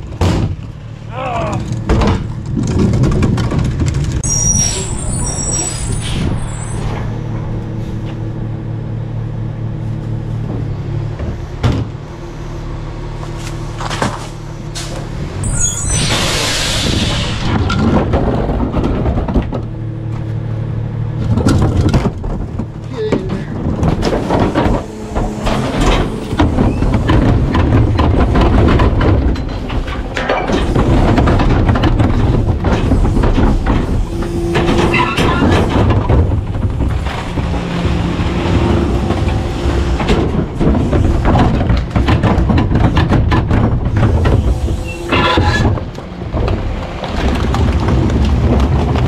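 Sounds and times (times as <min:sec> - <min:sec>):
truck engine low drone: 0:00.0 - 0:49.0
packer crushing trash: 0:17.1 - 0:49.0.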